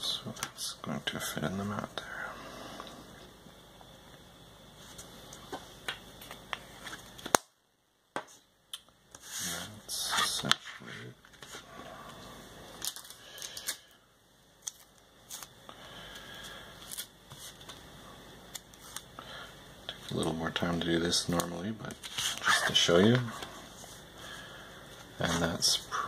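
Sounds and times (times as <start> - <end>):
paper rustling and scraping: 21.9 - 23.1.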